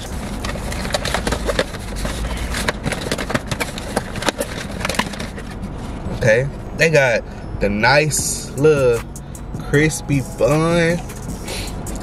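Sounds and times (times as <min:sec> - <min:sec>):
cardboard box being handled: 0:00.0 - 0:05.7.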